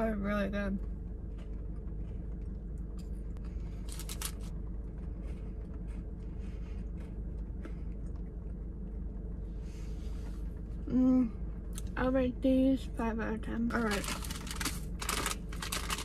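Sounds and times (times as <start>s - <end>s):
steady low hum: 0.0s - 16.0s
chewing and crunching wafer bar: 0.8s - 9.1s, 13.8s - 16.0s.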